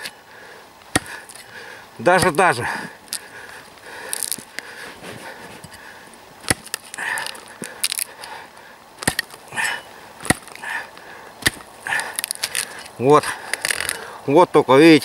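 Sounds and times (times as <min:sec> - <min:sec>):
axe chopping wood: 0:00.9 - 0:02.6, 0:06.4 - 0:08.1, 0:09.0 - 0:10.8, 0:11.4 - 0:12.8
soft scuffing: 0:04.2 - 0:05.8.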